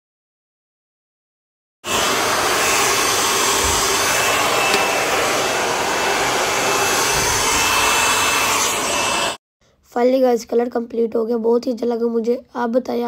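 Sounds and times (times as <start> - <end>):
hair dryer blowing: 1.8 - 9.4.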